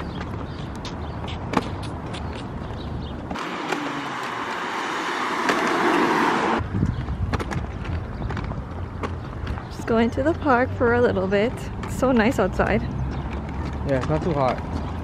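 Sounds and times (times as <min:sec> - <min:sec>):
rushing traffic: 0:00.0 - 0:15.0
stroller wheels on concrete: 0:00.0 - 0:15.0
wheels clicking over joints: 0:05.2 - 0:15.0
wind rumbling on microphone: 0:06.3 - 0:10.4.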